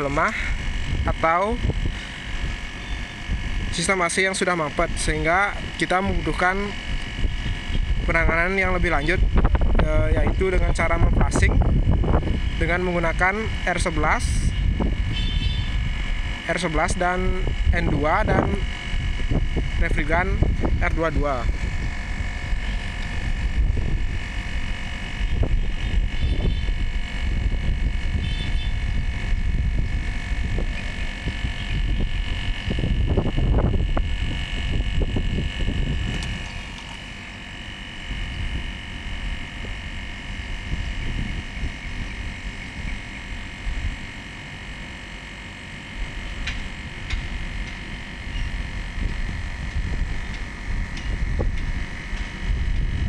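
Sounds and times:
air conditioner unit humming: 0.0 - 53.0.

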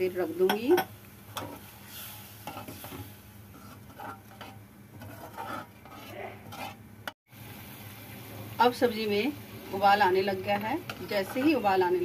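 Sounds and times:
faint sizzle: 0.0 - 12.0
spoon scraping metal pan: 0.5 - 6.8, 10.9 - 11.8.

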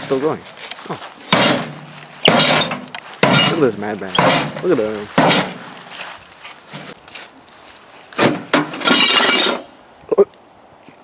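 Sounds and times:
clatter of breaking glass and metal: 1.4 - 3.6, 8.6 - 9.8.

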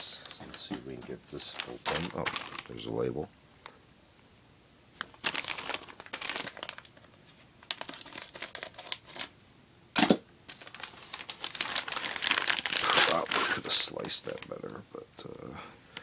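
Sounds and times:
plastic bag crinkling: 0.2 - 3.1, 5.0 - 9.4, 10.5 - 14.6.

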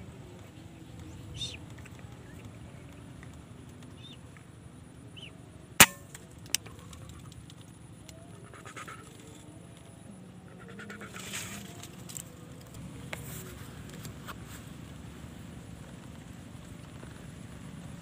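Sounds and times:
faint bird chirps: 3.9 - 4.4
rifle shot: 5.8 - 6.2.

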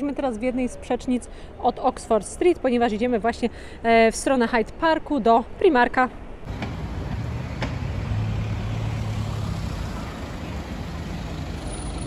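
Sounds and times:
road noise: 6.4 - 12.0
vehicle engine drone: 6.5 - 12.0.

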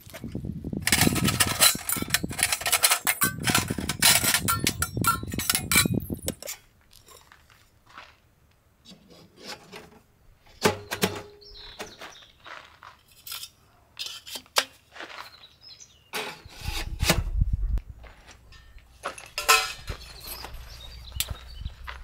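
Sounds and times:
camping gear knocking and clinking: 0.0 - 7.4, 9.5 - 12.2, 18.3 - 21.4.

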